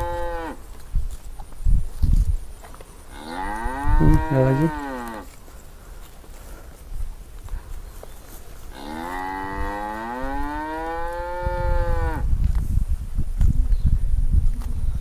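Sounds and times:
cow mooing: 0:00.0 - 0:00.6, 0:03.1 - 0:05.3, 0:08.7 - 0:12.2.

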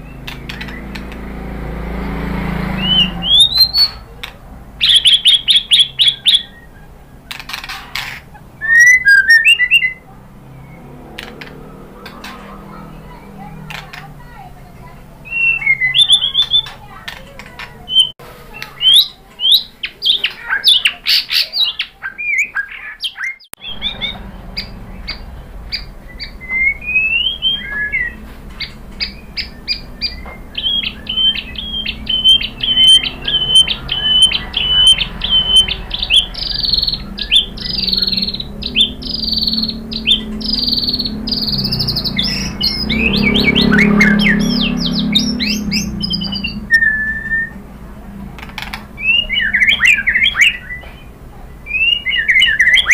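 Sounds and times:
low background rumble: 0:00.0 - 0:11.1, 0:23.6 - 0:52.3
bird singing whistles and chirps: 0:02.6 - 0:04.1, 0:04.8 - 0:10.9, 0:15.2 - 0:16.8, 0:17.8 - 0:47.6, 0:49.0 - 0:52.9.

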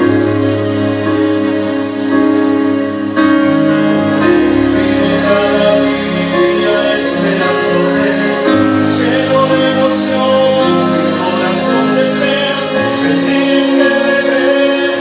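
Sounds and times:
instrumental accompaniment: 0:00.0 - 0:15.0
man singing into a microphone: 0:04.6 - 0:15.0.

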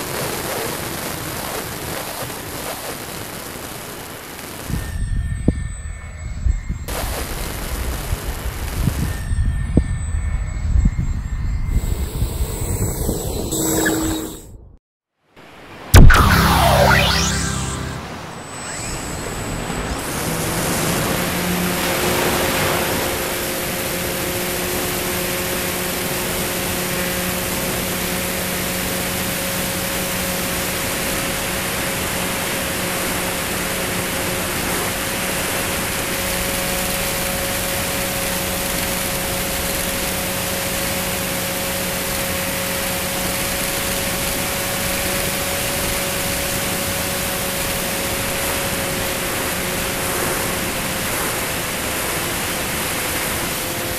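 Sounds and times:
electric motor and propeller: 0:18.6 - 0:53.9.

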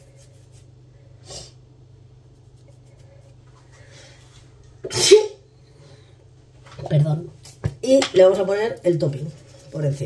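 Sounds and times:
low electrical hum: 0:00.0 - 0:10.0
person sniffing: 0:01.2 - 0:01.6
faint breath: 0:03.0 - 0:04.4.

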